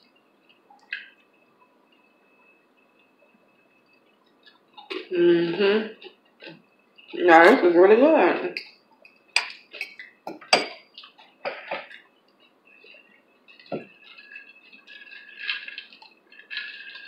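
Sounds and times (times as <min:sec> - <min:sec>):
fork clinking against glass: 0:09.4 - 0:10.8.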